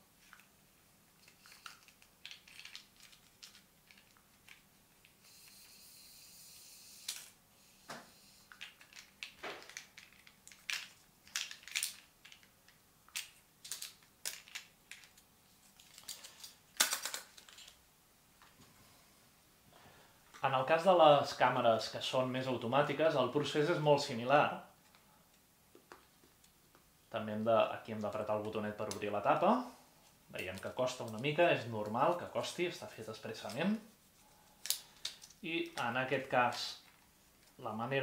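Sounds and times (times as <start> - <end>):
steady hiss: 0.0 - 9.2, 17.9 - 38.0.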